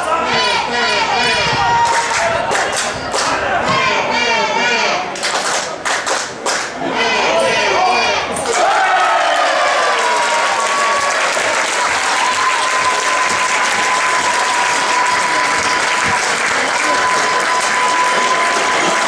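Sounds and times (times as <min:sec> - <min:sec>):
crowd applauding and cheering: 0:08.4 - 0:19.0.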